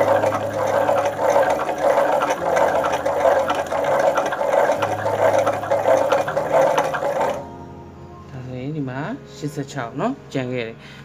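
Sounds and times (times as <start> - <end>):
hand-cranked gear drive whirring: 0.0 - 7.5.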